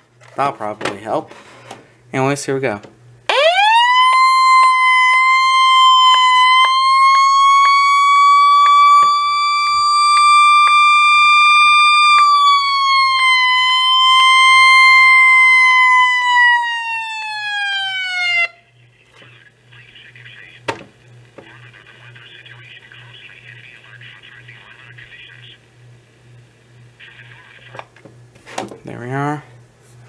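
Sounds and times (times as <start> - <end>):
high electronic alert siren: 3.3 - 18.7.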